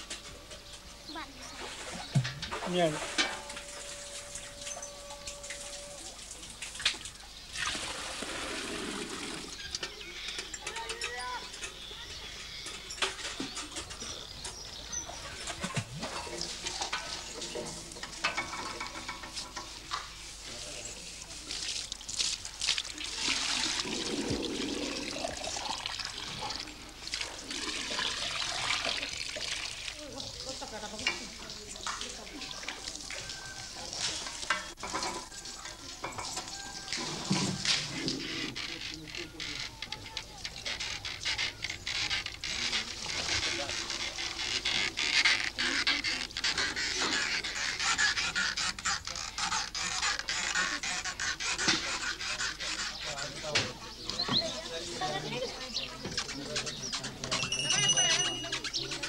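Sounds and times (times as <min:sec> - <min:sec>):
voices talking: 0:00.0 - 0:07.4, 0:09.2 - 0:22.0, 0:29.8 - 0:59.0
water splashing: 0:01.2 - 0:09.7, 0:15.0 - 0:19.2, 0:20.5 - 0:53.8
water poured into metal pot: 0:21.6 - 0:38.2.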